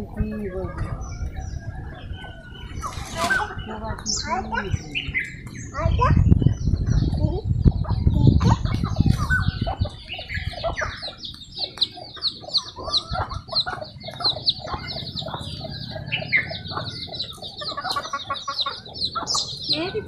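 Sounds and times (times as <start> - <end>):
chickens clucking: 0.0 - 20.0.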